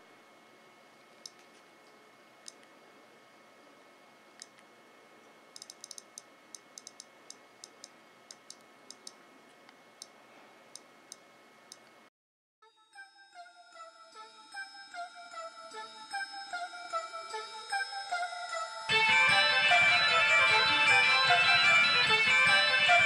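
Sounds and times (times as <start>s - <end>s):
click wheel ticking: 5.6s - 9.2s.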